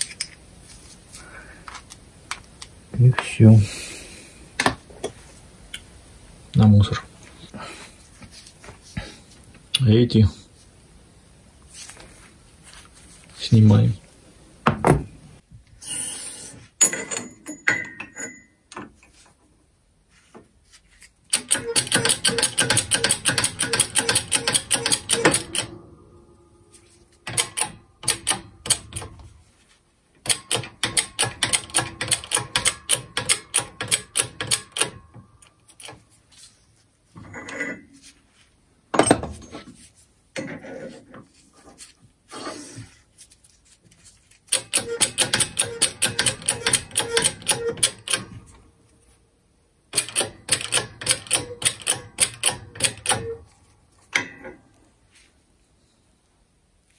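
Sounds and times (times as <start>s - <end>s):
hydraulic press pump clicking: 21.3s - 25.8s, 27.2s - 29.2s, 30.2s - 35.1s, 44.5s - 48.3s, 50.0s - 53.4s.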